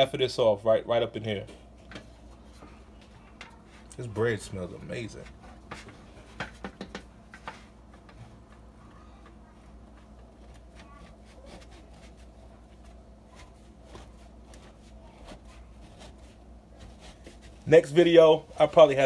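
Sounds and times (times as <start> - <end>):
knife sawing through frozen bread: 11.0 - 12.3, 15.2 - 17.6.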